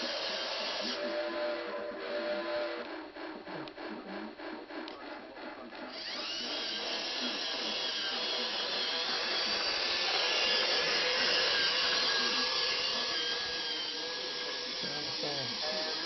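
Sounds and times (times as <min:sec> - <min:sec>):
toy train motor whirring: 0:00.0 - 0:16.0.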